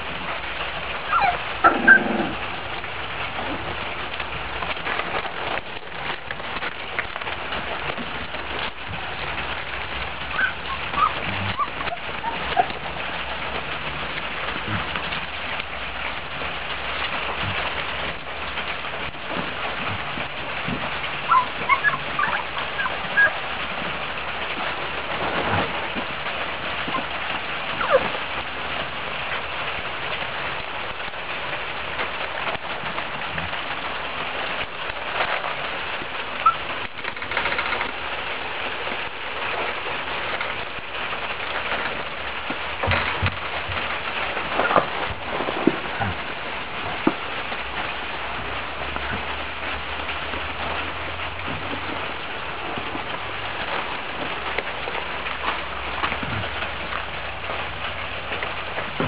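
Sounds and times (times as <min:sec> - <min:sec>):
puppies squeaking and whimpering: 0:01.0 - 0:02.1, 0:10.2 - 0:12.9, 0:21.2 - 0:23.4, 0:27.8 - 0:28.2, 0:36.4 - 0:36.7.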